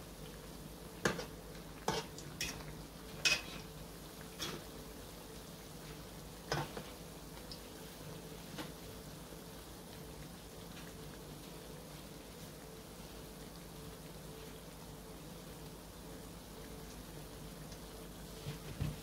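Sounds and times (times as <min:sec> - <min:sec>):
food sizzling in hot oil: 0:00.0 - 0:18.4
metal fork clinking on pan: 0:03.2 - 0:03.5.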